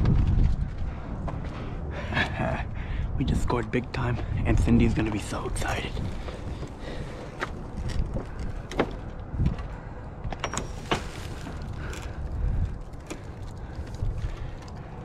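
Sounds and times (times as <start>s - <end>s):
rustling plastic bags: 10.5s - 14.9s.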